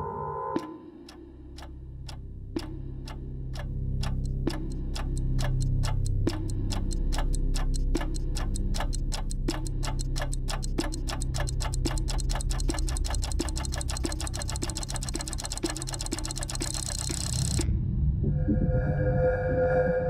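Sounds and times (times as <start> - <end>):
clock ticking: 0.6 - 17.7
low drone: 17.4 - 20.0.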